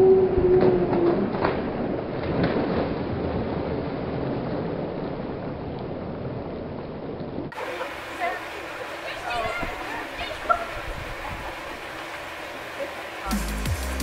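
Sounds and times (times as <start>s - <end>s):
pool water splashing: 0.1s - 14.0s
wind noise on microphone: 9.4s - 11.9s.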